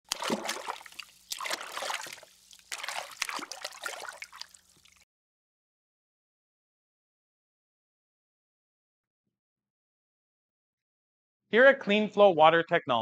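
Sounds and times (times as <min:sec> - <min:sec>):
water splashing and trickling: 0:00.0 - 0:05.0.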